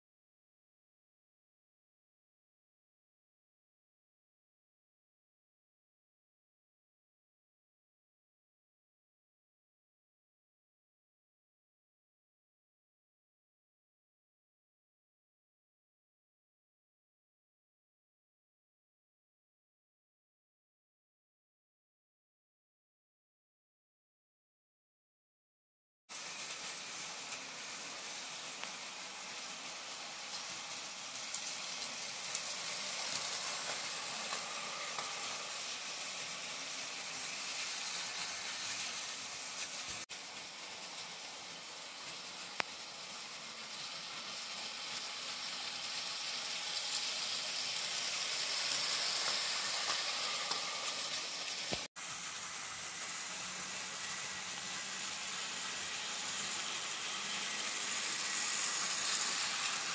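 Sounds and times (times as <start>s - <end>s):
model train whirring rattle: 26.2s - 59.9s.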